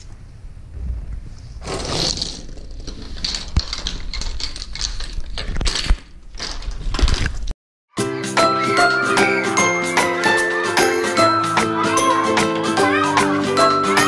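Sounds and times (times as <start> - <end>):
plastic toys scraping on wood: 1.6 - 7.3.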